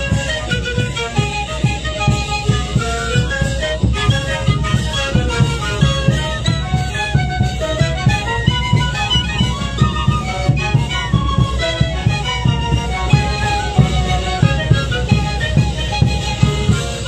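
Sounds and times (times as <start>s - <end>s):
wind band playing folk tune: 0.0s - 17.0s
bass drum beat: 11.6s - 17.0s.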